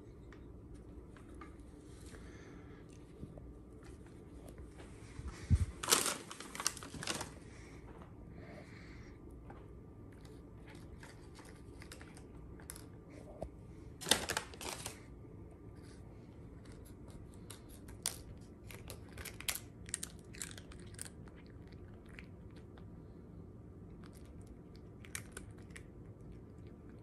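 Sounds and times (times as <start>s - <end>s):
paper bag crinkling: 5.4s - 7.4s, 14.0s - 15.1s.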